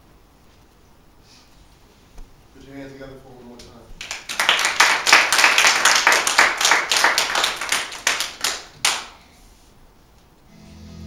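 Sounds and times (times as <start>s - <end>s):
people applauding: 4.0s - 9.2s.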